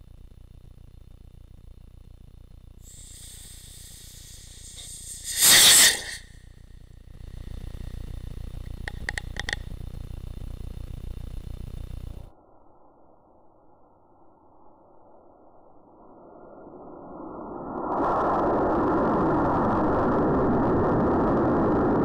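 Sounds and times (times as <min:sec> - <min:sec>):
firework rocket hiss: 0:02.8 - 0:06.6
quick clicks: 0:07.4 - 0:12.3.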